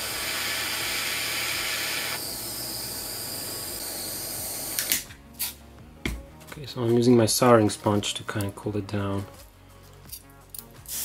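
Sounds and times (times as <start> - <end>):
butane torch flame hissing: 0.0 - 5.6, 10.8 - 11.0.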